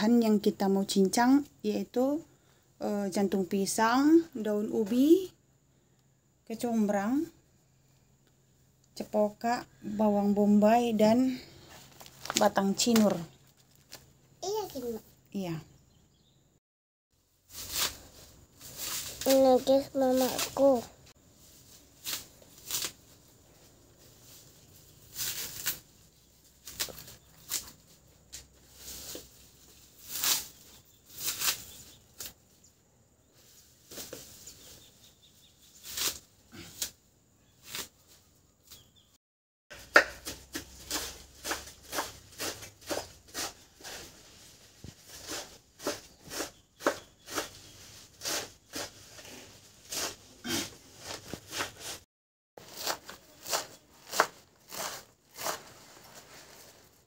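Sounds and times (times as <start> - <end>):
leaves snapping and rustling: 12.0 - 14.1, 22.0 - 23.2, 25.0 - 32.4, 35.8 - 37.0, 37.6 - 38.1
knife chopping on wooden board: 39.7 - 43.6, 52.8 - 55.6.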